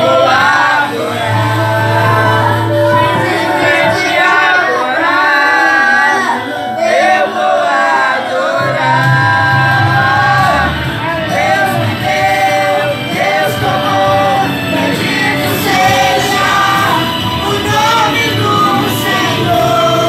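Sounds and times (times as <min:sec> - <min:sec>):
children singing a hymn: 0:00.0 - 0:20.0
musical accompaniment: 0:00.0 - 0:20.0
low bass part: 0:08.7 - 0:20.0.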